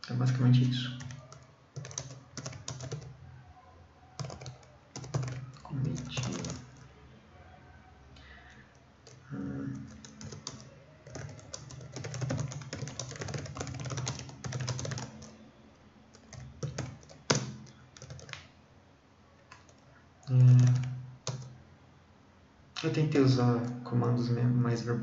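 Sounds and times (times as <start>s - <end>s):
typing on computer keyboard: 0.9s - 3.2s, 4.2s - 6.8s, 8.5s - 15.4s, 16.1s - 18.5s, 19.5s - 21.5s.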